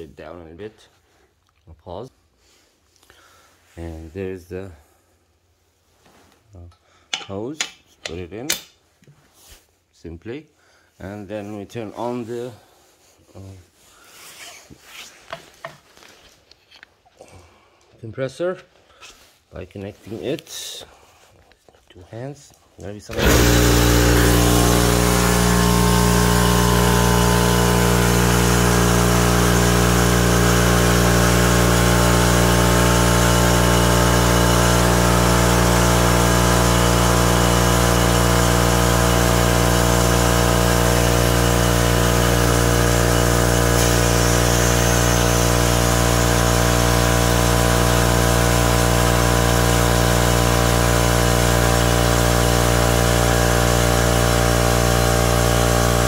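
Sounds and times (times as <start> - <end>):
air compressor running: 23.1 - 56.0.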